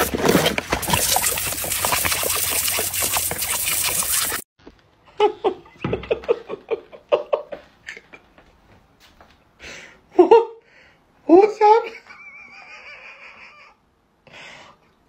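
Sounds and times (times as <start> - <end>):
person laughing: 5.1 - 8.3, 12.0 - 13.8.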